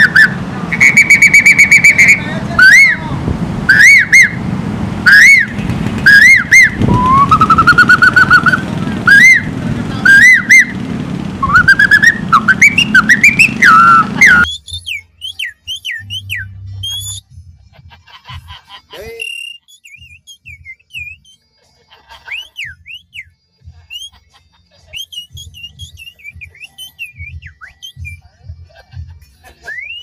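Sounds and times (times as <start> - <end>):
person whistling birdsong: 6.1 - 9.5, 11.4 - 17.2, 19.1 - 21.4, 22.3 - 23.3, 25.0 - 28.2, 29.6 - 30.0.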